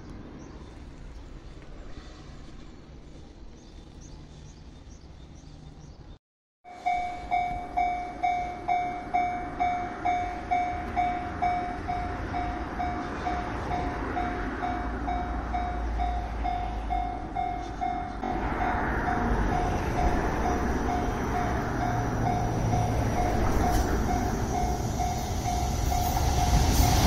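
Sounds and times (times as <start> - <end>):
level crossing warning bell: 6.7 - 27.0.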